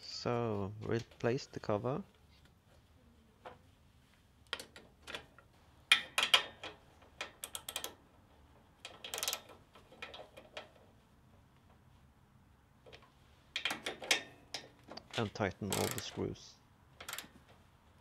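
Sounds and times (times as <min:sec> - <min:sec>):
metal clicks and clatter: 0:04.4 - 0:10.9, 0:12.8 - 0:16.3, 0:17.0 - 0:17.6
socket wrench on screws: 0:05.9 - 0:08.1, 0:08.8 - 0:10.8, 0:13.0 - 0:14.8, 0:15.7 - 0:16.2, 0:17.0 - 0:17.4.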